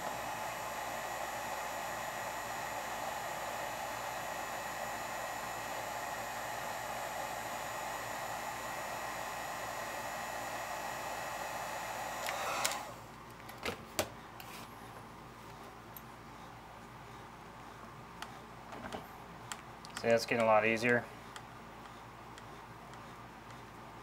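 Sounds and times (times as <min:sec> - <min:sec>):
heat gun blowing: 0:00.0 - 0:13.1.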